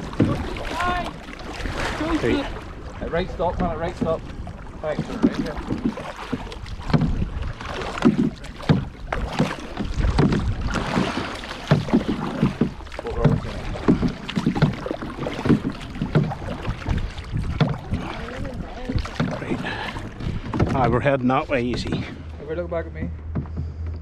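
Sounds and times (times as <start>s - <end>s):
wind buffeting microphone: 0.0s - 22.4s
canoe paddles splashing in water: 0.0s - 24.0s.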